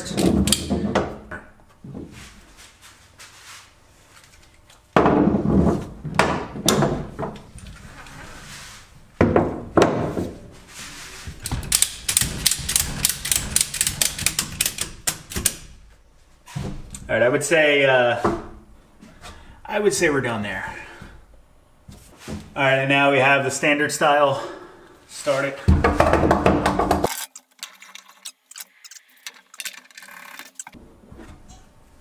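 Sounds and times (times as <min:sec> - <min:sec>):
ratchet clicks: 0:11.7 - 0:15.6.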